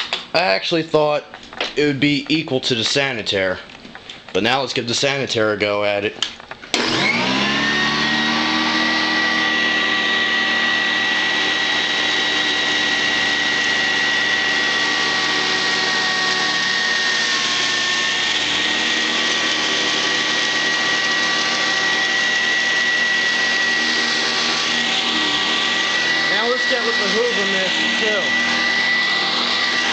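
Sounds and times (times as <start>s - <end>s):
vacuum cleaner motor whining: 6.7s - 29.9s.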